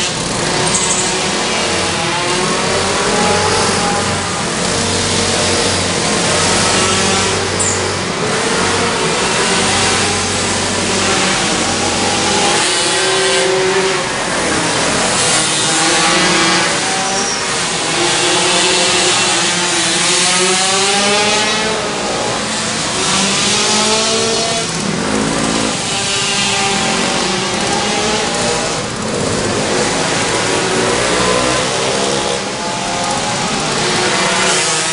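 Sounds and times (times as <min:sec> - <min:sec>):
pocket bike engines racing: 0:00.0 - 0:34.9.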